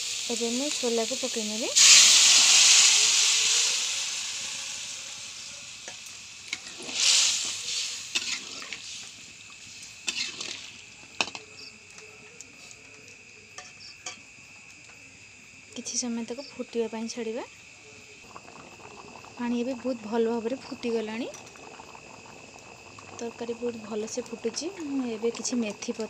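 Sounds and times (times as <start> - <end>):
food sizzling in oil: 0.0 - 26.0
spoon scraping pan: 5.8 - 9.1, 10.0 - 11.4.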